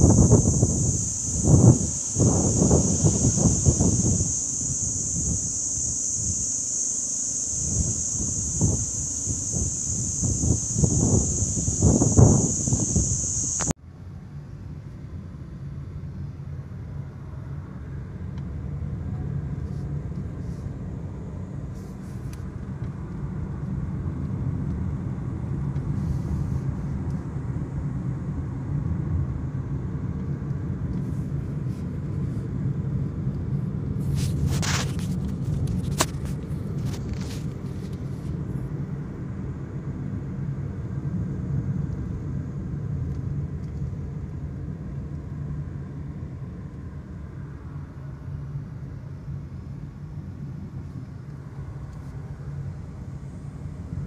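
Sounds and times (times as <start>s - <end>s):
brief hiss: 0.0s - 13.7s
car engine and tyre rumble: 0.0s - 54.0s.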